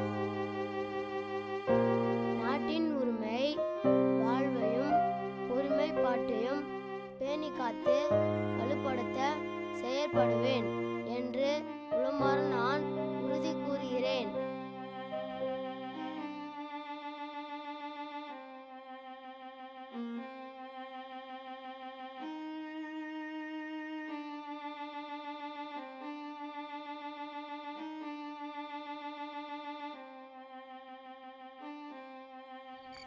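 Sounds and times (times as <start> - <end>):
violin playing slow notes: 0.0 - 33.0.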